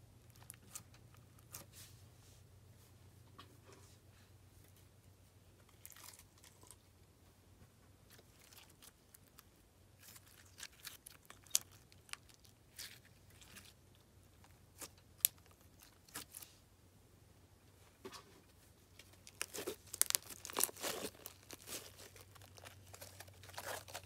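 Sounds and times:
slime crunching and popping: 0:08.2 - 0:13.8, 0:14.4 - 0:16.4, 0:19.0 - 0:24.0.

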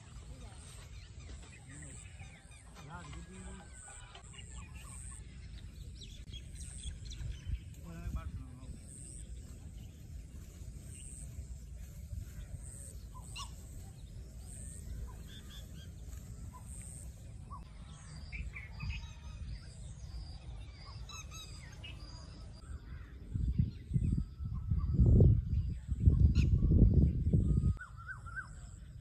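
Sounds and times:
bird chirps and calls: 0:00.0 - 0:29.0
steady low rumble: 0:04.2 - 0:18.8.

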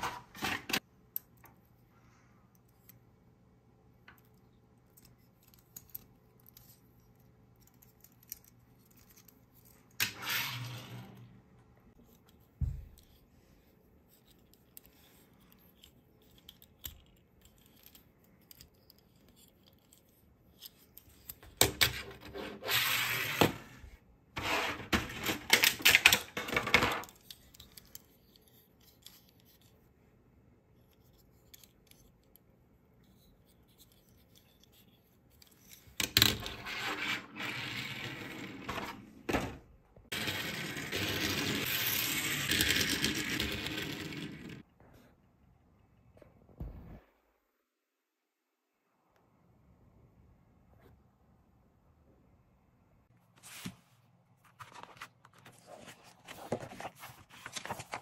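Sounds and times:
toy cars rubbing and clicking: 0:05.0 - 0:11.3, 0:22.0 - 0:26.3, 0:33.4 - 0:39.0, 0:40.1 - 0:44.7.

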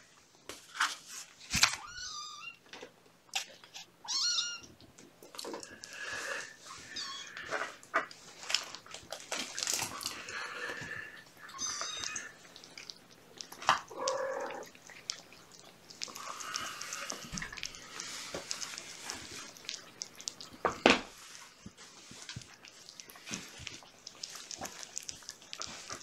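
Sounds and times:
kittens chewing wet food: 0:02.7 - 0:26.0
kitten mewing: 0:13.8 - 0:14.7.

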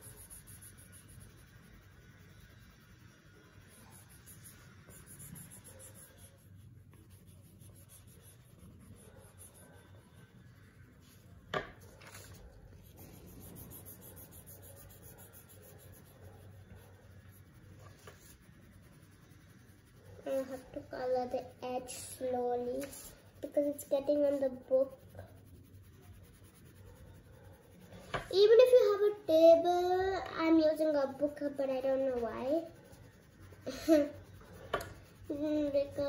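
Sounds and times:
crayons scratching on paper: 0:00.0 - 0:36.0.

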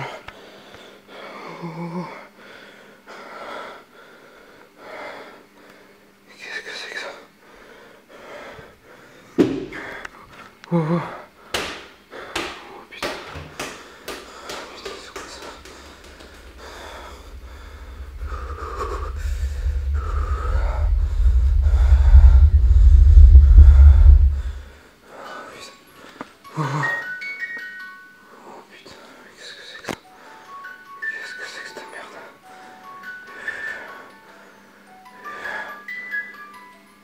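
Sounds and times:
person breathing heavily and gasping: 0:13.6 - 0:22.2
deep rumble: 0:15.4 - 0:24.7.

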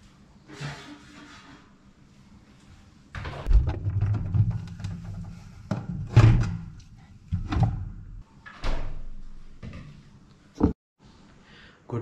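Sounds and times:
refrigerator door opening and shutting: 0:03.1 - 0:09.1.

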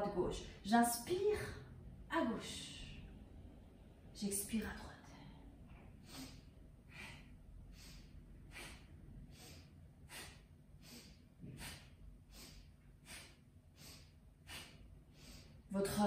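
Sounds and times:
woman breathing rhythmically: 0:04.8 - 0:16.0.

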